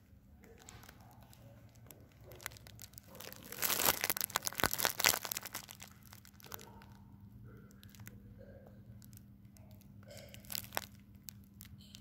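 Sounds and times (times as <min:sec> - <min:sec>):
steady low hum: 0:00.0 - 0:12.0
rustling handling noise: 0:00.4 - 0:06.9, 0:09.0 - 0:12.0.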